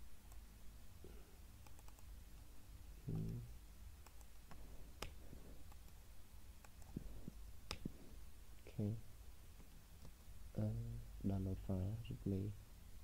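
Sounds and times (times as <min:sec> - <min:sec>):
computer mouse clicks: 0:01.6 - 0:02.1, 0:04.0 - 0:06.0, 0:06.6 - 0:07.0.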